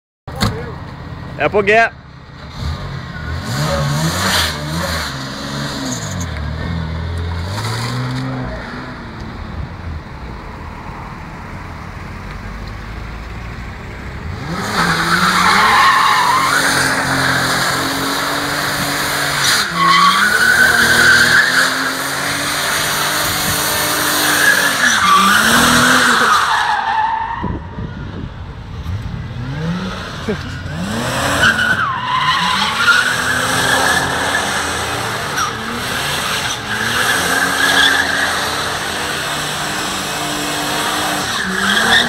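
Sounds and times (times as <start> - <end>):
car engine revving: 2.4 - 9.6, 12.8 - 42.0.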